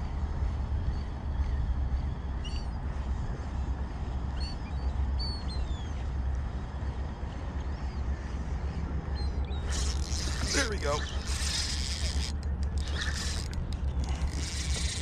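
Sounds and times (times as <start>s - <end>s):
high bird calls: 9.2s - 13.5s.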